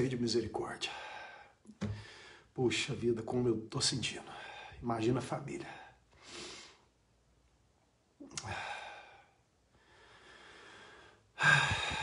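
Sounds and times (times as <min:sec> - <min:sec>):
man sighing heavily: 0:11.4 - 0:12.0.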